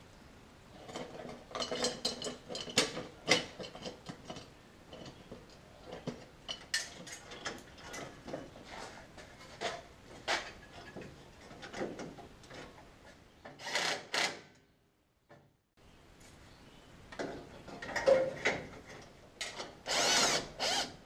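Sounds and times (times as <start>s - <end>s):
metal tools clinking and knocking: 0.9s - 8.5s, 17.7s - 19.6s.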